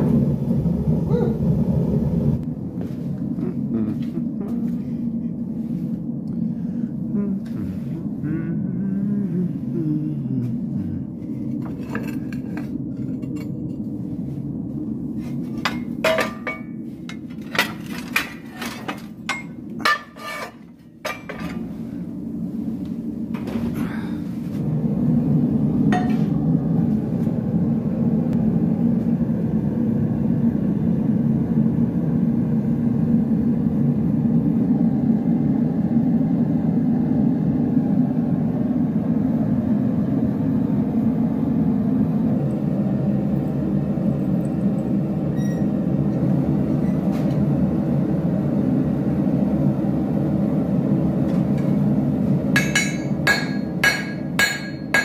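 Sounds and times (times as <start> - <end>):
low rushing noise: 0.0 - 19.9, 20.7 - 46.8
hammer striking iron on anvil: 25.9 - 26.2, 52.6 - 55.0.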